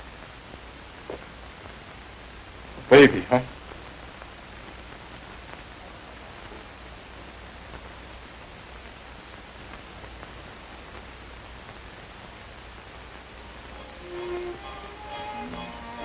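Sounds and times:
film soundtrack hiss: 0.0 - 16.0
low hum: 13.3 - 16.0.

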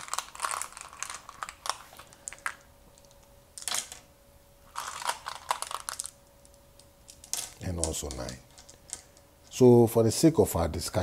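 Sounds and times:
seeds clicking into wooden pit: 5.5 - 9.2.

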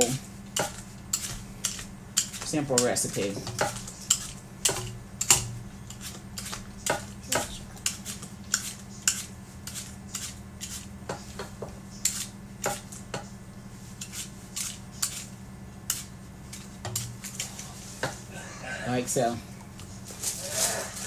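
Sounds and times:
steady low hum: 0.0 - 21.0
knife cutting apple peel: 5.9 - 13.0, 14.0 - 17.6.

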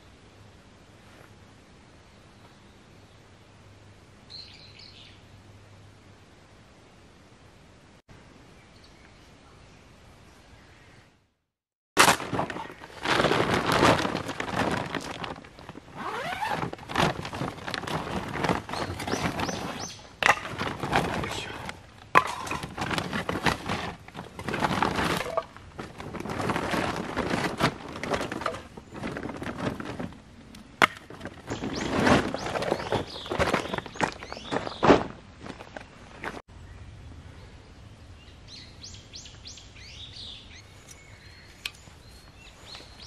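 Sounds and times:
wood cracking: 12.0 - 15.8.

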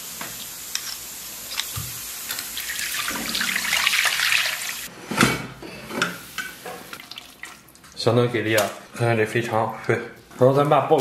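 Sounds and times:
water running: 0.0 - 4.9, 6.6 - 8.6.

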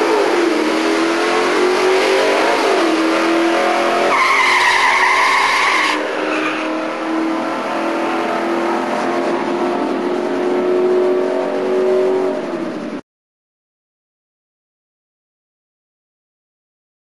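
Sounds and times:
racing car engines at full throttle: 0.0 - 13.0
high squeal: 4.1 - 6.8.

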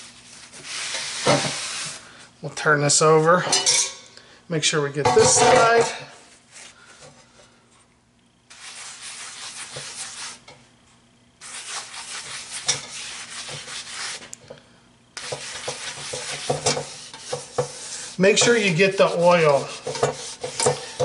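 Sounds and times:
paper towel rubbing cast iron: 0.0 - 2.0, 8.5 - 10.4, 11.4 - 14.3, 15.2 - 21.0.

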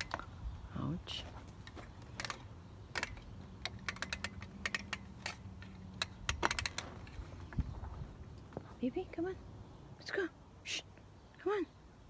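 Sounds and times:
sharp clicks and ticks: 1.6 - 7.7.

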